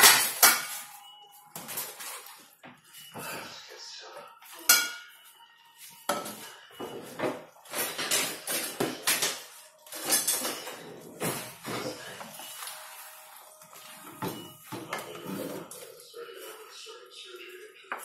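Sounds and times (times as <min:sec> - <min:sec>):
kitchenware clattering: 0:00.0 - 0:03.4, 0:04.6 - 0:05.3, 0:06.1 - 0:15.9.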